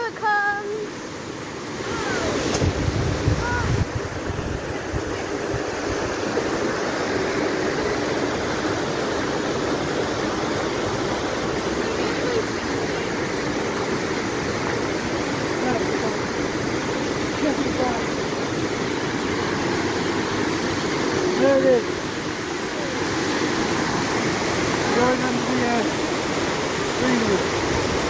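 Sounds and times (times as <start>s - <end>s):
flowing water rushing: 0.0s - 28.0s
wind rumble on microphone: 2.0s - 6.4s.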